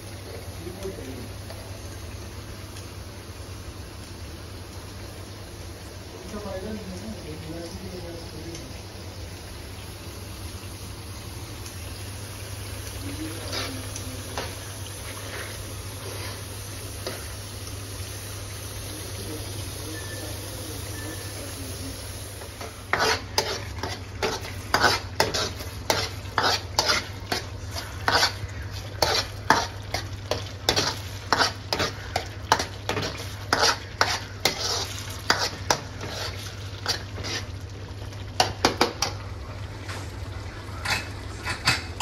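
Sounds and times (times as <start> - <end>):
masala sizzling in oil: 0.0 - 42.0
metal spoon scraping a pan: 13.2 - 17.4, 22.4 - 37.6.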